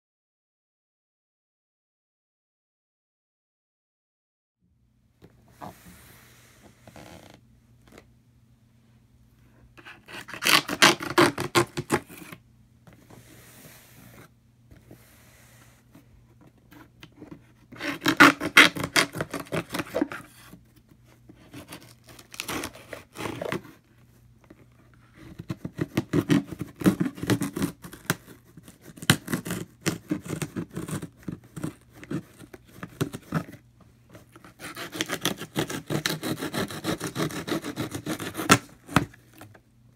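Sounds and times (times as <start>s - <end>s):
hands scratching cardboard box: 9.8s - 12.4s, 16.7s - 23.9s, 24.5s - 39.6s.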